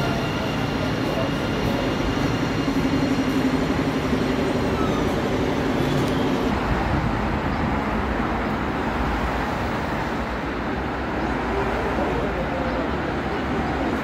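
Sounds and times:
city traffic noise: 0.0s - 14.0s
tram motor hum and whine: 0.0s - 14.0s.

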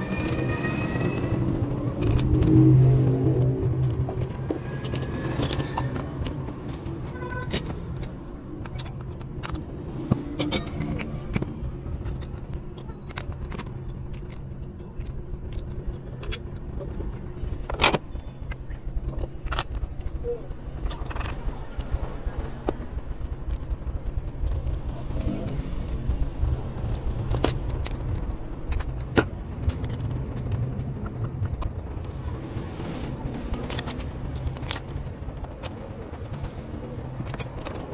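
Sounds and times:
metal parts clicking and clinking: 1.9s - 2.6s, 4.2s - 9.7s, 10.3s - 21.9s, 26.8s - 32.1s, 33.3s - 37.9s.

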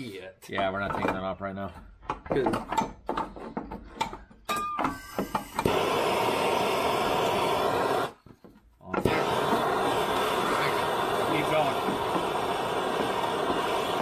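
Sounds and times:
gas torch hissing: 4.8s - 8.3s, 8.9s - 14.0s.

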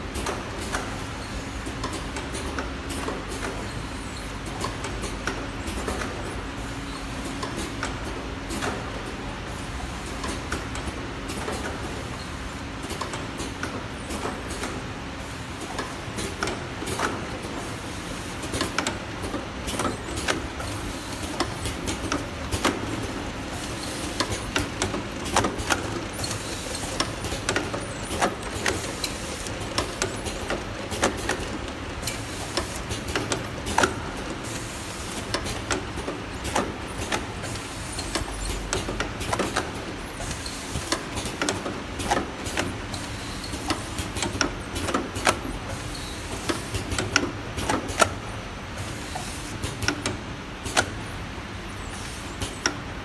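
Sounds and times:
labeling machine conveyor hum: 0.0s - 53.0s.

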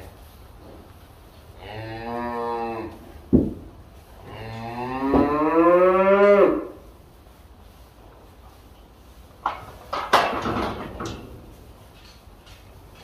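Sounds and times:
cattle mooing: 1.6s - 3.0s, 4.2s - 6.8s.

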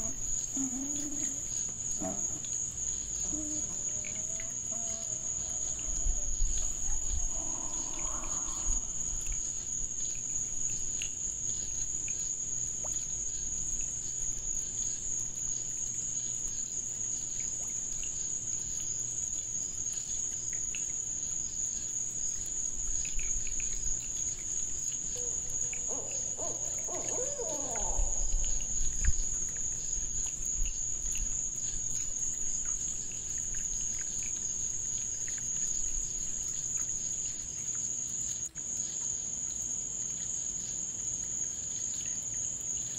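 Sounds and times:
lower-pitched animal call: 0.0s - 2.5s, 3.2s - 9.2s, 25.2s - 29.0s
faint small ticks: 0.0s - 42.9s
night insects chorus: 0.0s - 42.9s.

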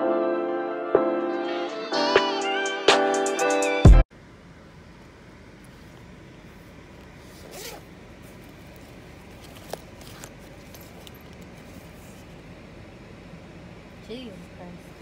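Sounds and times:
steady low hum: 4.1s - 15.0s
zipper being pulled open: 7.2s - 11.7s.

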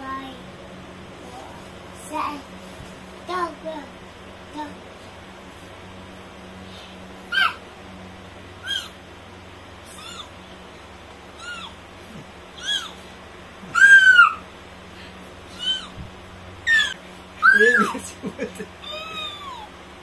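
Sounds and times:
toddler calling in squeaky voice: 7.3s - 7.6s, 8.6s - 9.0s, 9.9s - 10.3s, 11.4s - 11.8s, 12.6s - 13.0s, 13.7s - 14.4s, 15.6s - 15.9s, 16.7s - 17.8s.

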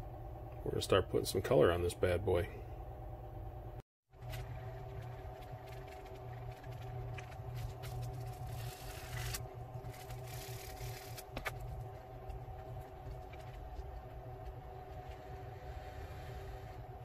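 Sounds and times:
low hum: 0.0s - 17.0s
sandpaper rubbing: 8.2s - 11.3s.

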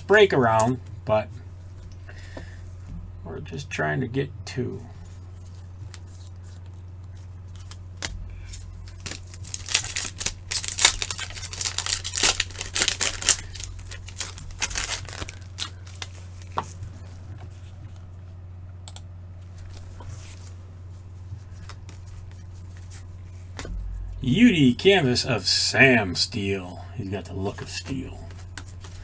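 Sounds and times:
cards rustling and clicking: 5.0s - 18.1s, 21.3s - 23.9s, 27.2s - 29.0s
wrapper tearing and crinkling: 7.5s - 16.6s.

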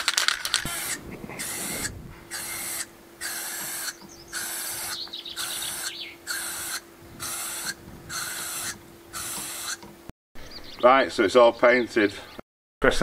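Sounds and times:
aerosol paint spraying in bursts: 0.7s - 9.9s.

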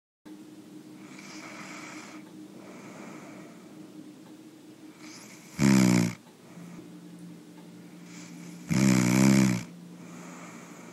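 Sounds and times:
steady low hum: 0.3s - 10.9s
quiet breathing: 0.9s - 10.9s
person snoring: 1.0s - 3.6s, 5.0s - 6.8s, 8.0s - 10.9s.

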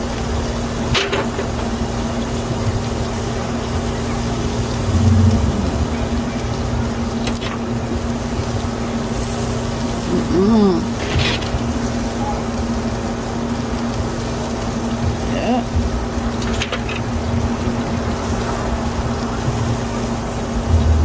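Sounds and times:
mechanical hum: 0.0s - 21.0s
rushing noise: 4.2s - 8.0s, 20.0s - 21.0s.

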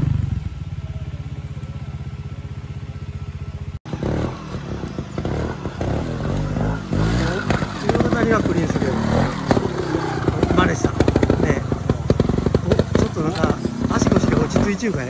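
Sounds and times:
motorcycle engine idling: 0.0s - 15.0s
motorcycle riding over rocks: 3.4s - 15.0s.

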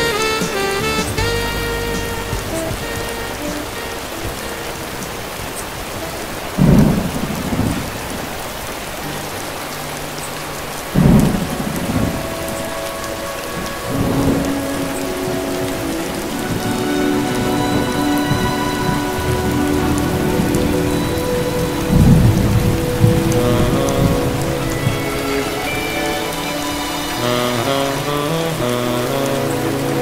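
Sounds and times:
thunderclaps: 0.0s - 8.6s, 10.9s - 25.7s
faint music: 0.0s - 30.0s
rain on a hard surface: 0.0s - 30.0s
rumble of thunder: 4.2s - 8.3s.

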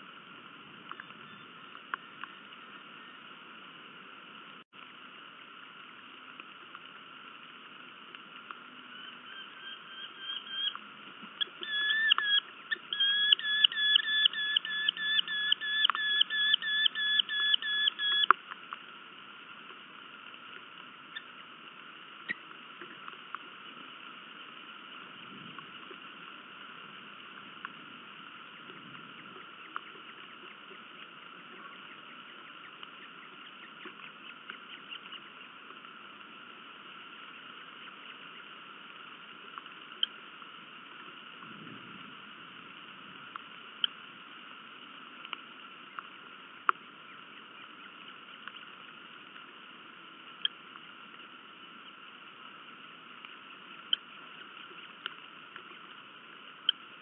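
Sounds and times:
rain hissing: 0.0s - 57.0s
bird sharp repeated calls: 8.9s - 10.8s, 11.4s - 18.3s.

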